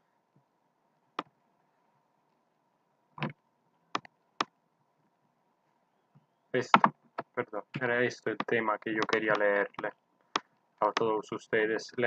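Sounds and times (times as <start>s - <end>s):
computer mouse clicks: 3.2s - 4.6s, 6.7s - 11.1s.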